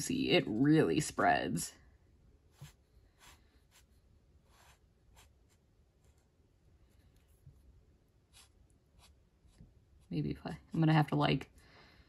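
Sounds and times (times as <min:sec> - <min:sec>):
marker strokes on paper: 0:02.5 - 0:06.3, 0:08.2 - 0:10.3.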